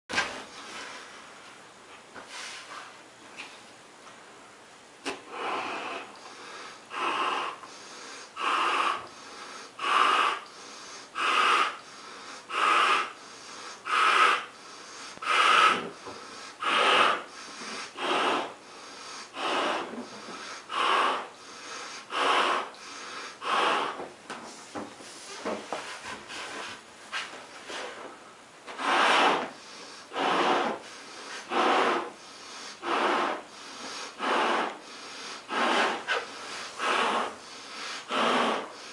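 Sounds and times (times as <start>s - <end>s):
breaths blowing up balloon: 5.0s - 24.1s, 28.7s - 38.9s.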